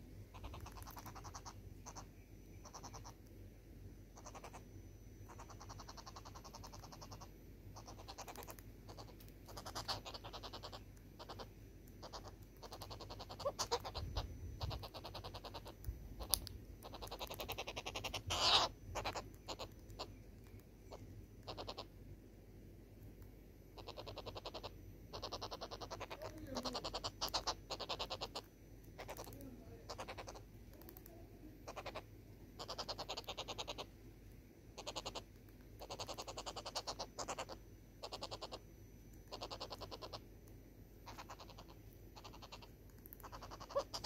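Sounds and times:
sharp clicks: 42.9s - 43.2s.

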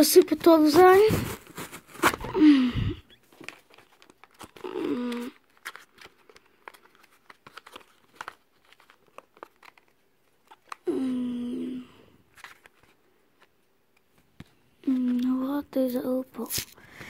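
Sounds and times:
packaging crinkling and tearing: 0.0s - 2.4s, 3.2s - 10.9s, 12.3s - 13.5s.

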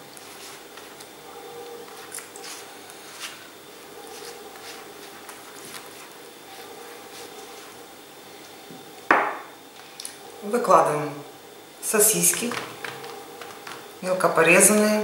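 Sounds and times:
knock: 9.1s - 9.5s.

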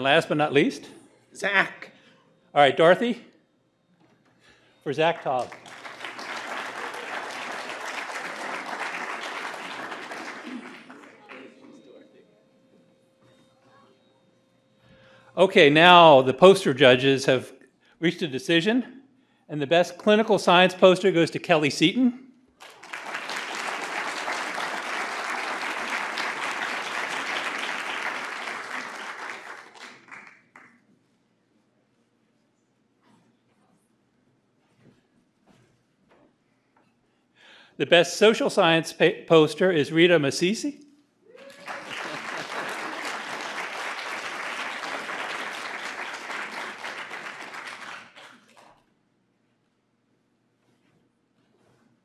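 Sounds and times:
audience applauding: 5.0s - 11.8s, 22.6s - 30.8s, 41.4s - 48.7s.

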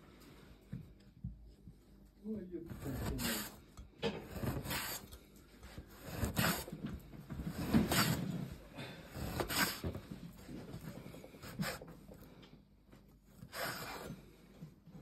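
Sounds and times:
knife slicing meat on wooden board: 2.8s - 3.6s, 4.2s - 5.1s, 5.8s - 6.7s, 7.6s - 8.2s, 9.2s - 9.9s.

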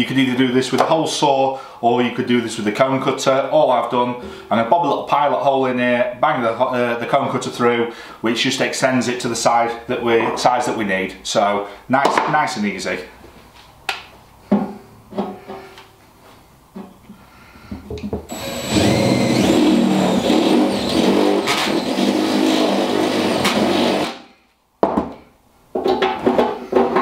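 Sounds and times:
drill grinding through steel: 18.3s - 24.2s.

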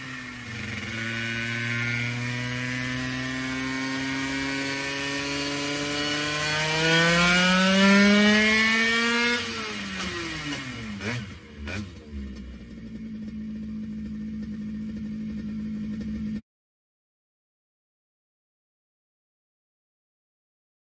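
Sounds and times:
moped engine revving: 0.0s - 16.4s.

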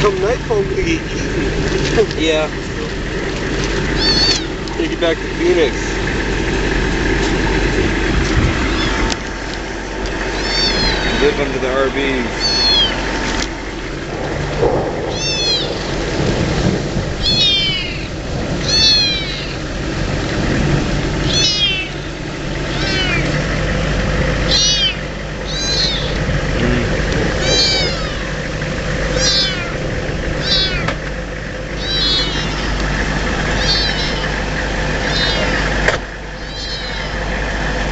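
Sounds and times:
low rumble and hum: 0.0s - 37.9s
kitten meowing: 4.0s - 4.6s, 8.6s - 9.1s, 10.3s - 11.5s, 12.3s - 13.0s, 15.1s - 15.9s, 17.2s - 19.6s, 21.2s - 23.4s, 24.5s - 26.2s, 27.3s - 28.4s, 29.1s - 31.0s, 31.8s - 32.9s, 33.5s - 34.4s, 35.0s - 35.8s, 36.4s - 37.2s.

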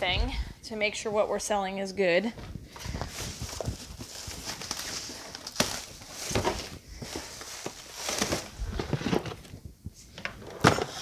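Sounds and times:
cardboard boxes being handled: 2.8s - 9.6s
plastic wrap rustling: 2.8s - 9.7s.

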